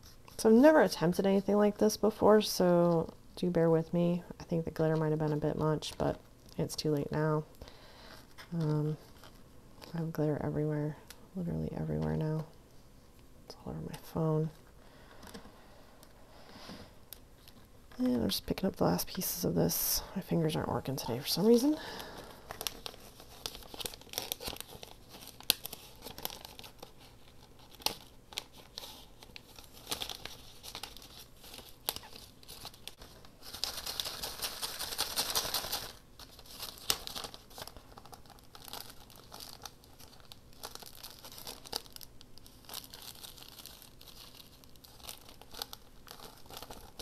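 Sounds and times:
paper rustling and crinkling: 8.1 - 10.1, 21.2 - 47.0.

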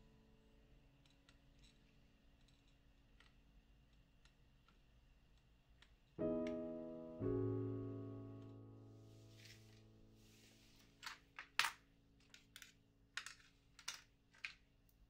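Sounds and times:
piano chords: 6.2 - 11.0.

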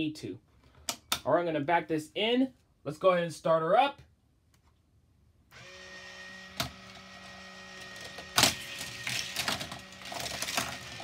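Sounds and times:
toy motor whining: 5.6 - 11.0
plastic toy cars clacking: 9.0 - 11.0.

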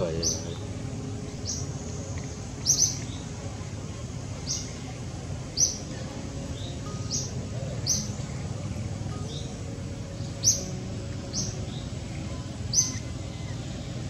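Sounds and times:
high downward-sliding bird chirps: 0.0 - 3.7, 4.3 - 14.0
steady low hum: 0.0 - 14.0.

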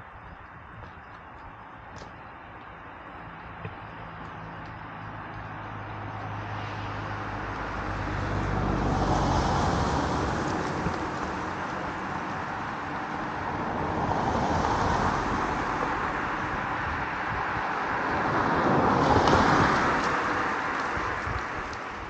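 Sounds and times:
low engine hum: 0.0 - 22.0
road traffic passing: 0.0 - 22.0.

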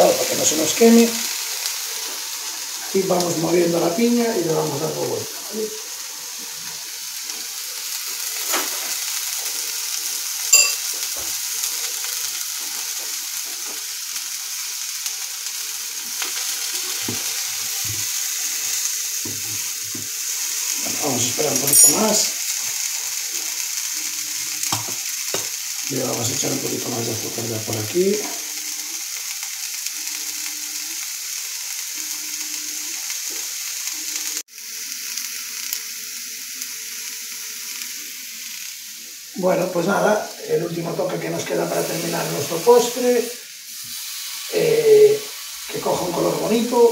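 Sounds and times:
fruit and sugar sizzling in pan: 0.0 - 46.9
short metallic clink: 10.6 - 10.8.

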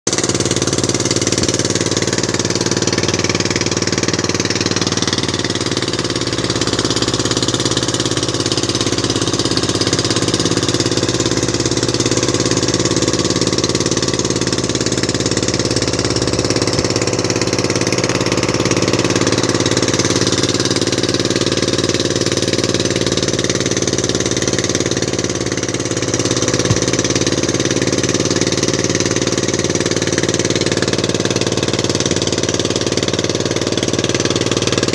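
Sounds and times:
boat engine droning: 0.1 - 34.9.

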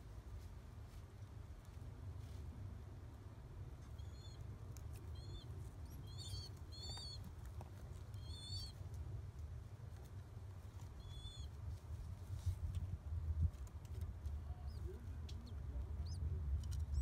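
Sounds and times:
low background rumble: 0.0 - 17.0
pigeon chick peeping: 3.0 - 12.4, 13.4 - 17.0.

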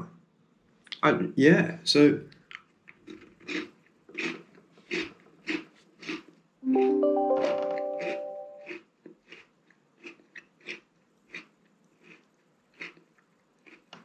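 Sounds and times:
crunchy biscuit chewing: 2.6 - 6.4, 8.7 - 14.0
plucked guitar music cue: 6.6 - 8.7.

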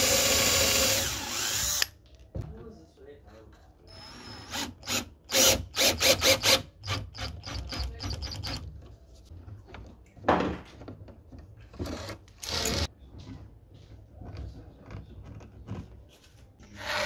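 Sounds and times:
cordless drill driving a screw: 0.0 - 1.9, 12.4 - 12.9
screwdriver scraping on wood: 11.8 - 12.9.

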